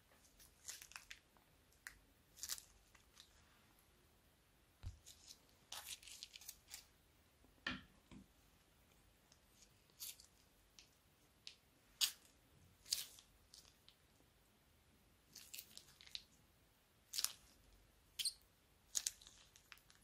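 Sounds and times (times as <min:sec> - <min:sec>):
plastic piping bag crinkling: 0:00.2 - 0:03.4, 0:04.8 - 0:06.9, 0:15.3 - 0:16.4, 0:18.9 - 0:20.0.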